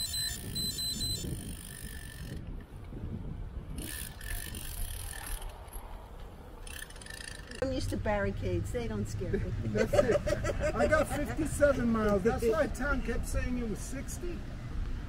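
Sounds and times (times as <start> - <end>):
high electronic beeps: 0.0 - 1.5
bicycle hub ticking: 0.0 - 2.6, 3.8 - 5.8, 6.6 - 7.7
road and wind rumble: 0.0 - 15.0.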